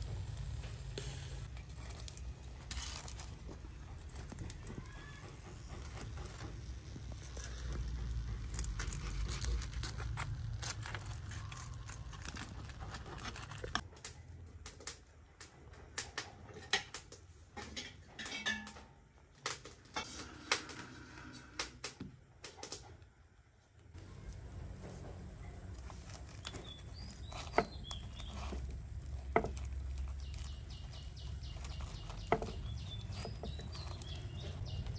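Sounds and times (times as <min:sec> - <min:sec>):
metal tongs clattering on grill: 0:16.5 - 0:20.6.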